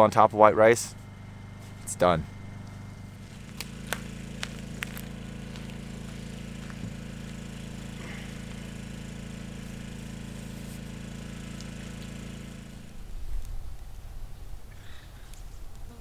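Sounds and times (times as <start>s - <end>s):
generator humming: 0.0s - 16.0s.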